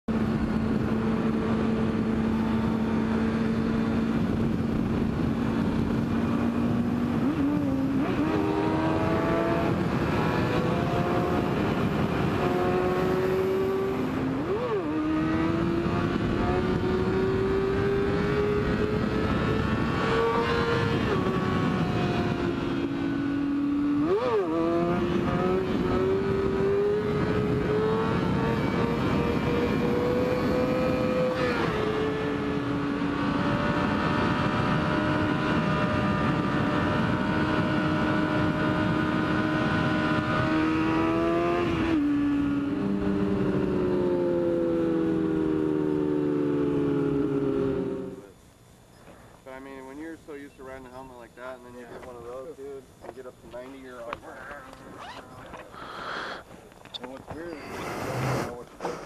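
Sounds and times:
wind rush: 0.1s - 44.2s
motorcycle engine accelerating: 0.1s - 48.4s, 50.8s - 59.0s.

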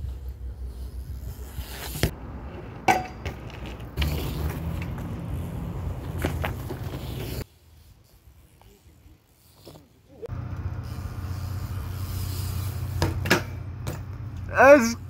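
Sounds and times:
bike hitting concrete: 1.2s - 7.5s, 10.8s - 14.9s.

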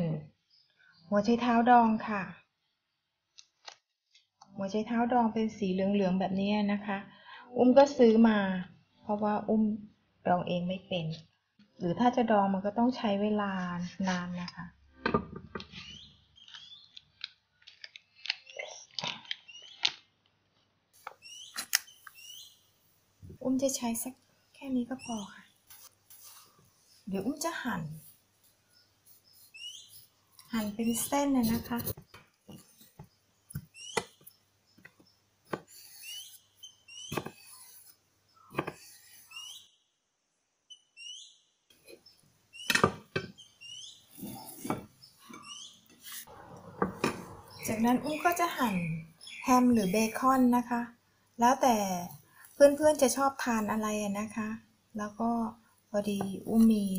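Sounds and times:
bird chirps: 15.7s - 17.0s, 21.2s - 22.7s, 24.6s - 25.5s, 28.6s - 39.8s, 40.7s - 50.6s.

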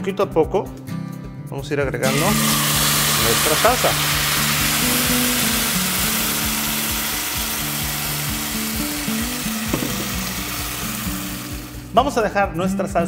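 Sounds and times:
soft background music: 0.0s - 13.0s
sauce sizzling in hot oil: 2.1s - 11.9s.

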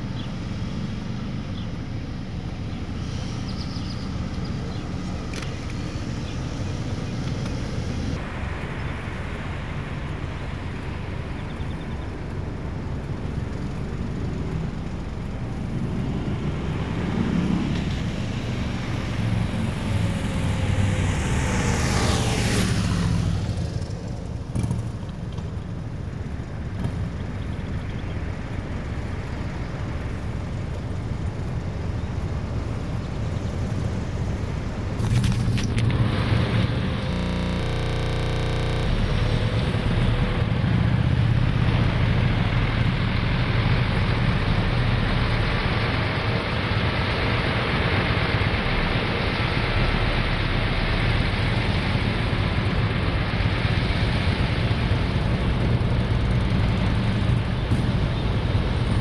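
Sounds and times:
road traffic rumble: 0.0s - 59.0s
vehicle passing close by: 13.5s - 25.0s.

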